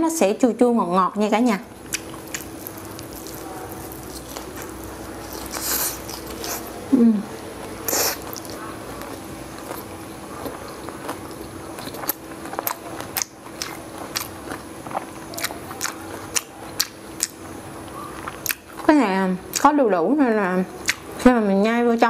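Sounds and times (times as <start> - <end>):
faint steady hum: 0.0 - 22.0
person chewing wetly: 1.8 - 18.9, 20.8 - 21.2.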